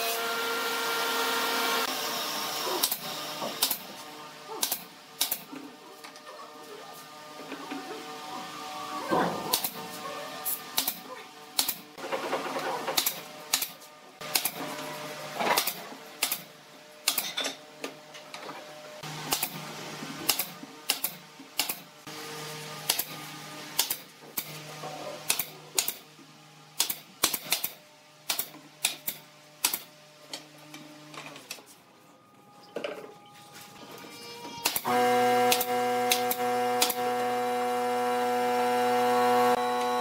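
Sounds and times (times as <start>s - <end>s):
nail gun firing: 2.8s - 3.8s, 4.6s - 5.5s, 9.5s - 9.8s, 11.6s - 11.8s, 13.0s - 14.6s, 15.5s - 17.3s, 19.3s - 19.6s, 20.3s - 21.8s, 22.8s - 23.1s, 23.8s - 24.5s, 25.3s - 26.0s, 26.8s - 29.9s, 34.6s - 37.1s.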